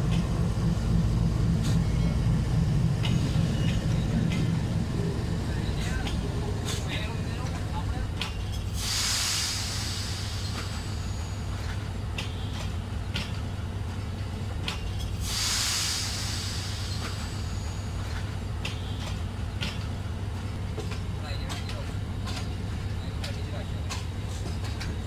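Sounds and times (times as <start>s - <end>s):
wheels clacking over rail joints: 0.0s - 8.8s, 10.3s - 15.3s, 16.6s - 25.0s
train coaches rumbling: 0.0s - 25.0s
hiss bursts: 8.6s - 11.6s, 15.1s - 18.4s.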